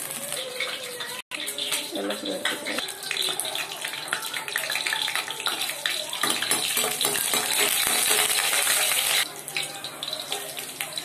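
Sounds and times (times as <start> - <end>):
garlic sizzling in hot oil: 0.0 - 11.0.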